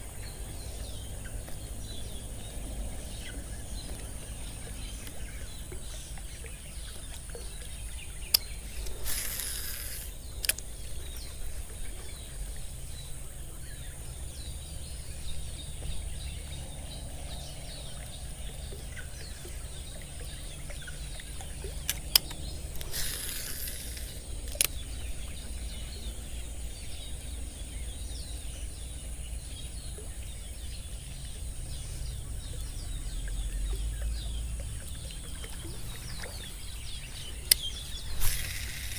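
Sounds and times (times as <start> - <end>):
faint bird chirps: 0.0 - 38.9
fishing reel click: 8.3 - 11.3, 21.9 - 25.2, 37.4 - 38.9
fishing line hissing off spool: 8.6 - 11.8, 22.7 - 25.3, 37.5 - 38.9
wind rumble on microphone: 9.8 - 38.9.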